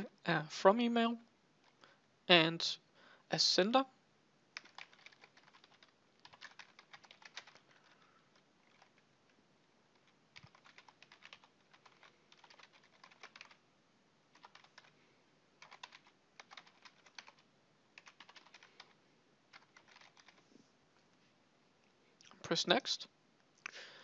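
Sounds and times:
faint keyboard typing: 1.6s - 1.9s, 4.5s - 13.7s, 14.3s - 20.7s.

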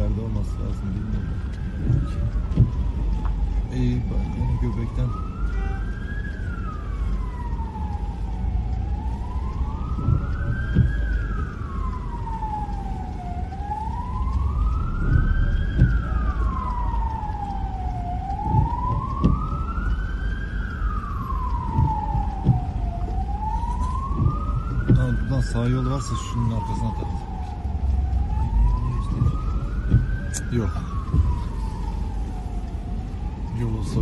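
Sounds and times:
low rumble: 0.0s - 34.0s
siren wailing: 0.0s - 34.0s
dull knocks: 21.7s - 22.8s.

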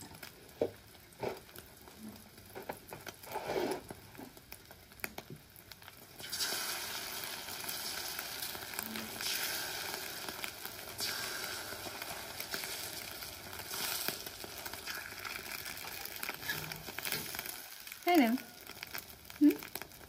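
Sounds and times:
egg sizzling in hot oil: 0.0s - 20.0s
metal spatula scraping pan: 16.4s - 17.4s.

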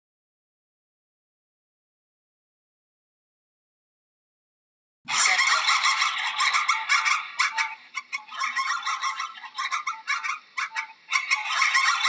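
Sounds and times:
flock of fowl calling: 5.1s - 12.0s.

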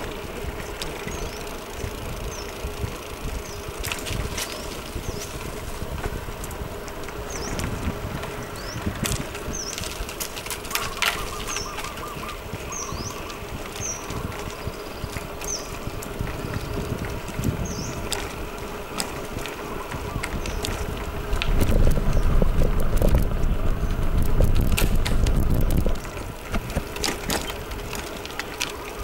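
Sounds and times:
bicycle tyre noise: 0.0s - 29.0s
wind rumble on microphone: 0.0s - 29.0s
bird calling with high notes: 10.7s - 14.1s.

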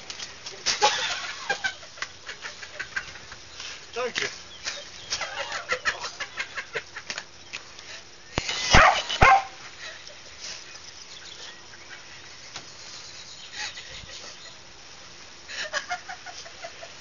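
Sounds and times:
dog barking: 8.7s - 9.6s.

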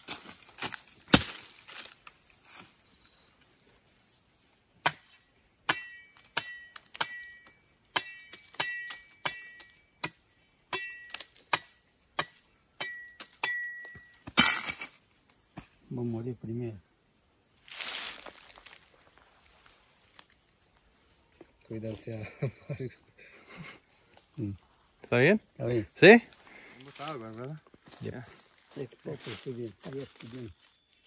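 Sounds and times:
machete chopping wood: 0.6s - 1.8s, 4.8s - 14.9s
metallic ring from blade: 5.7s - 9.9s, 10.7s - 11.4s, 12.8s - 14.6s.

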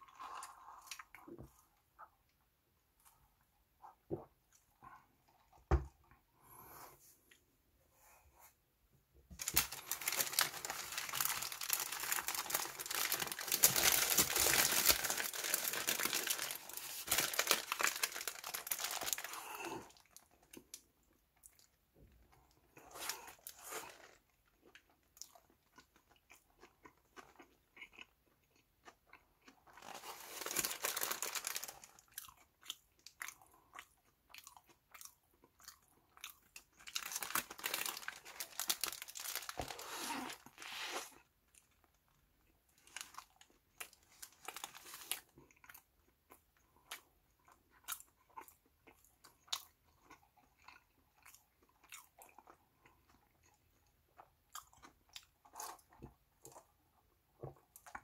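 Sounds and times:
paper wrapper crinkling: 9.3s - 19.7s, 29.8s - 32.0s, 36.9s - 41.0s, 42.9s - 45.3s.

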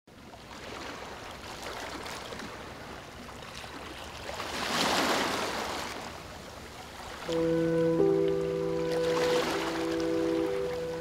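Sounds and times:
sea waves washing onto shore: 6.8s - 11.0s.

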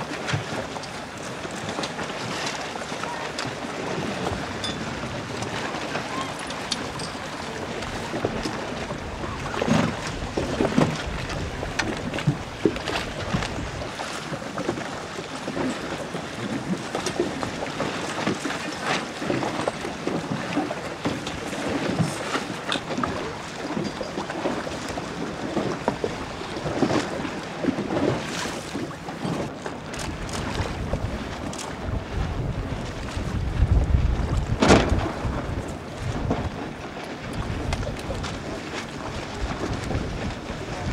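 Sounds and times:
small waves splashing: 0.0s - 40.9s
wind buffeting microphone: 3.1s - 14.1s, 29.8s - 40.9s.

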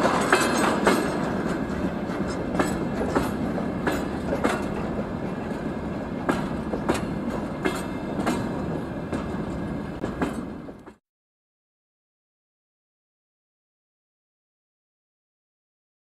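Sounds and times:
train wheels rumbling on rails: 0.0s - 11.0s
wheels clicking over rail joints: 0.0s - 11.0s.

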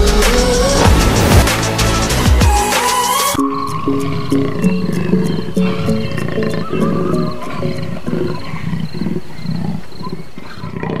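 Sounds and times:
electronic music with synth: 0.0s - 7.6s
big cat growling: 3.8s - 11.0s.

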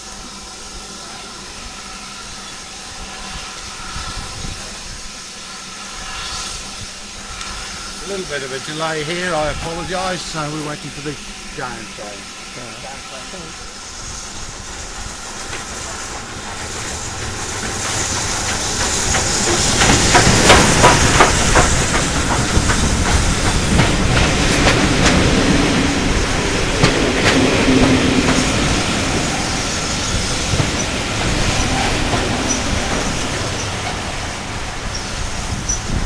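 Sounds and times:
steam locomotive passing with hiss: 0.0s - 36.0s
train wheels clicking over rail joints: 14.0s - 36.0s.

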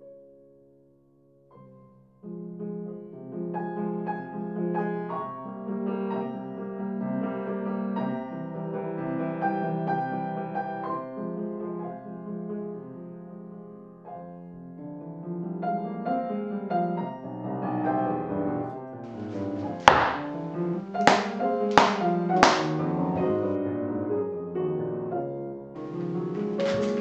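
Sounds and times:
solo piano music: 0.0s - 27.0s
sharp thumps: 19.1s - 23.0s.

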